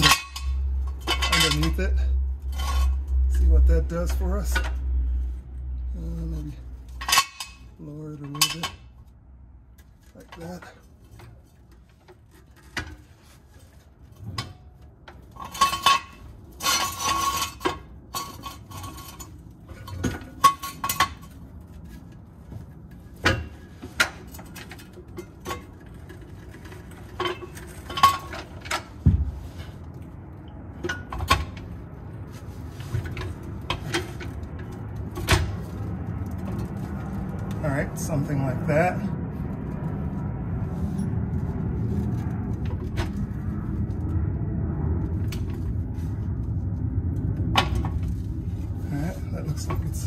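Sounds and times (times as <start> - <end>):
metal parts clinking and clanking: 0.0 - 5.0, 6.0 - 38.3, 47.6 - 50.0.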